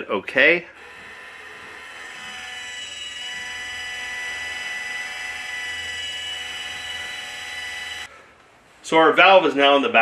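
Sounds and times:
valve motor whining: 0.7s - 8.1s.

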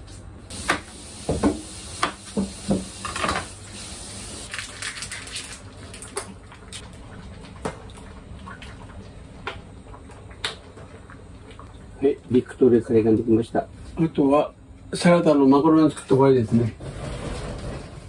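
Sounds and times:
kitchen knocks and clatters: 1.2s - 3.6s
pot simmering: 5.4s - 12.8s.

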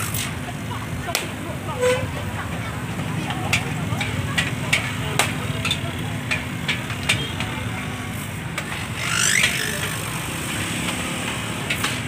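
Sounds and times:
low rumble of traffic: 0.0s - 12.0s
scattered clicks and clatter: 2.9s - 7.8s, 8.5s - 12.0s.

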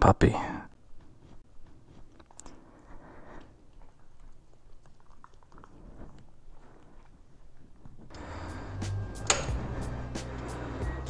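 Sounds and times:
puppy chewing: 0.8s - 8.1s.

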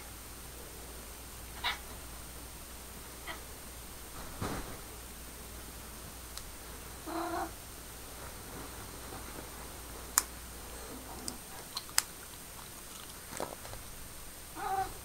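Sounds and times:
cat meowing: 14.6s - 15.0s.

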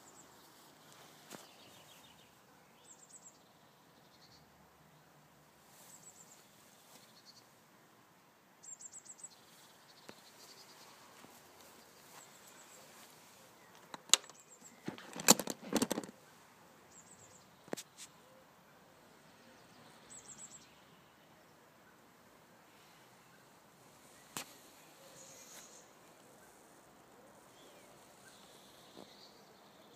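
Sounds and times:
small birds chirping: 0.0s - 7.6s, 8.6s - 22.1s, 22.7s - 29.9s
sharp knocks and rustling: 13.8s - 16.2s.

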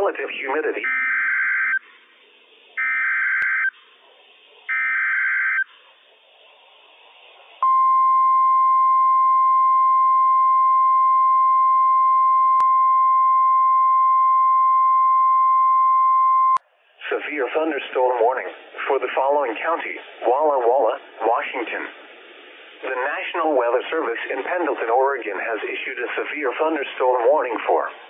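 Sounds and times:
faint radio hiss: 0.0s - 1.0s, 1.6s - 7.9s, 16.6s - 28.0s
steady alarm tone: 0.8s - 1.8s, 2.8s - 3.8s, 4.7s - 5.7s.

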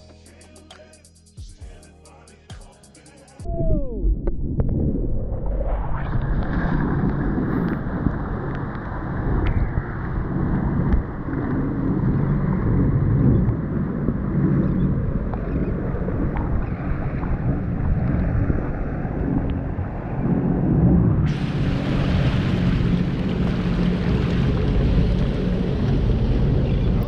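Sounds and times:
watercraft engine drone: 1.6s - 27.0s
wind buffeting microphone: 3.4s - 27.0s
water spray off hull: 21.3s - 26.9s.

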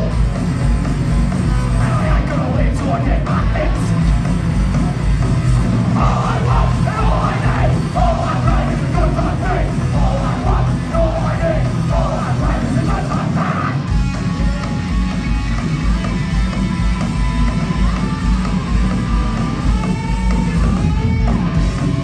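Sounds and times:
punk rock band playing live: 0.0s - 22.0s
shouted vocals: 6.0s - 13.9s.

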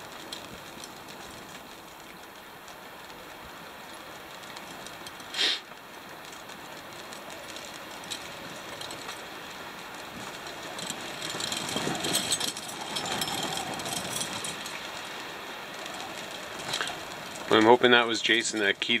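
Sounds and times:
radio static hiss: 5.3s - 5.7s.

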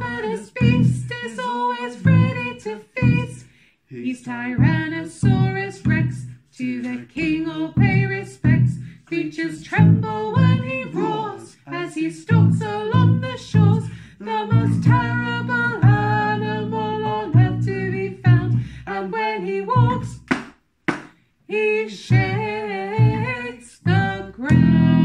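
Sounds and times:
plucked double bass: 0.0s - 1.2s, 2.0s - 3.4s, 4.6s - 6.3s, 7.2s - 9.0s, 9.6s - 11.3s, 12.3s - 18.8s, 19.7s - 20.2s, 22.1s - 25.0s
man and woman singing: 0.0s - 20.2s, 21.5s - 25.0s
short sharp knocks: 20.3s - 21.2s.

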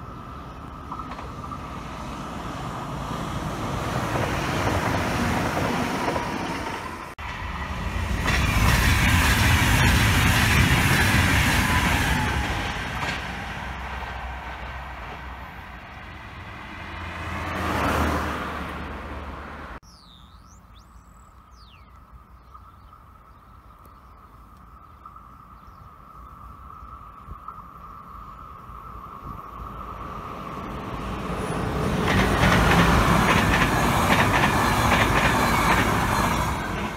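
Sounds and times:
train wheels rushing on rail: 0.0s - 18.2s, 29.3s - 36.9s
birds chirping: 19.8s - 29.3s.

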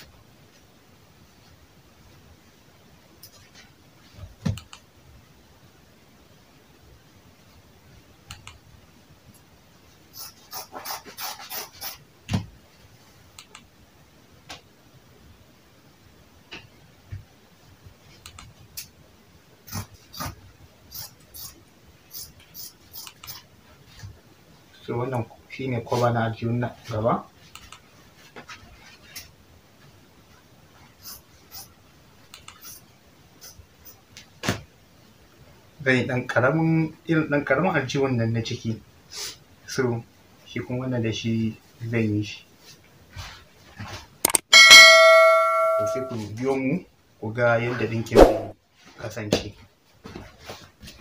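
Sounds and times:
faint clicks: 13.4s - 13.7s
fabric rustling and scraping: 27.9s - 31.0s, 42.6s - 44.2s, 49.6s - 51.0s.

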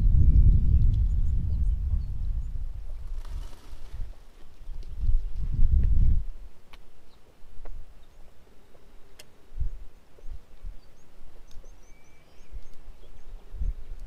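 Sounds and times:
dull low thumps: 0.0s - 3.1s, 4.8s - 6.3s.

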